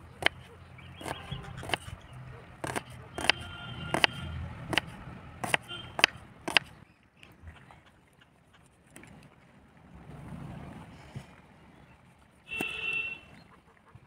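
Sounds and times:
knife chopping on wooden board: 0.2 - 0.4, 1.0 - 1.9, 2.6 - 6.7
knife cutting tomato: 1.0 - 1.9, 2.6 - 6.7.

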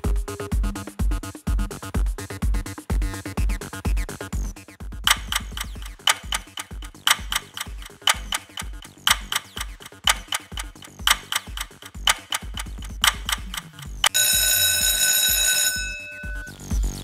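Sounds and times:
steady bass beat: 0.0 - 15.1, 15.8 - 17.0
clock ticking: 5.0 - 16.8
alarm clock ringing: 5.1 - 16.7.

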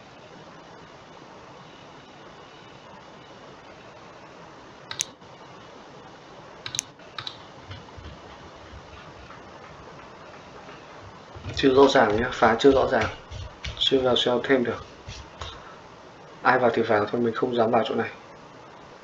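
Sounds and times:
steady low hiss: 0.0 - 19.0
computer mouse clicking: 4.9 - 5.2, 6.6 - 10.4.

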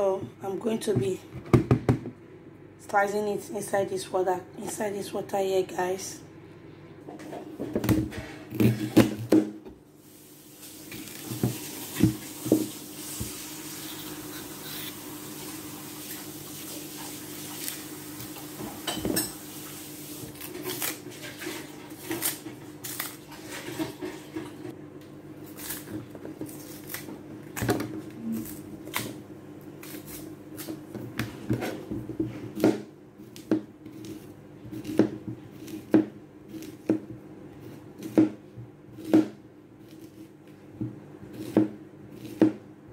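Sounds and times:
peel scraping and rustling: 19.8 - 24.6.

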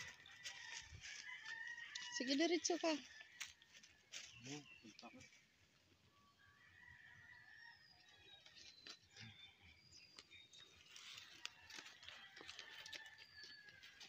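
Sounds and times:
footsteps crunching on dry leaves: 0.0 - 5.0, 10.3 - 14.0.

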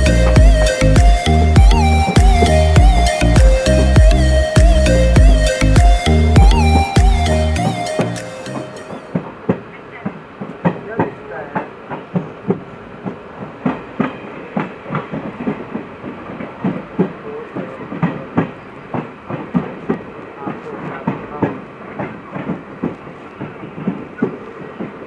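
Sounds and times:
train rolling rumble: 0.0 - 25.0
train wheels clattering over joints: 7.6 - 25.0.

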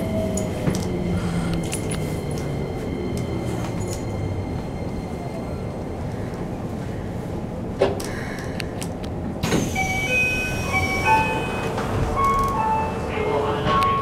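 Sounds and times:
train doors sliding open: 0.0 - 4.4, 7.7 - 14.0
train running rumble: 0.0 - 14.0.

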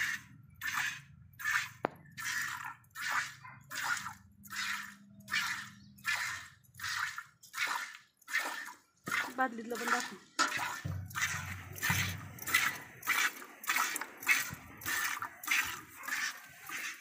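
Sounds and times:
milk squirting into metal bucket: 0.0 - 17.0.

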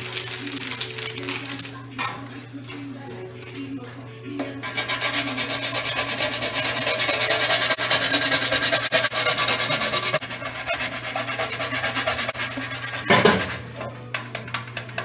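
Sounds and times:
nutmeg rasping on metal grater: 4.6 - 13.6.

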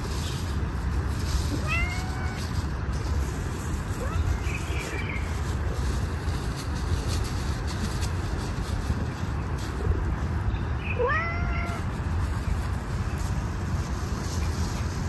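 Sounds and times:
steady low rumble: 0.0 - 15.0
cat meowing: 1.5 - 2.6, 3.9 - 5.0, 10.9 - 11.9.

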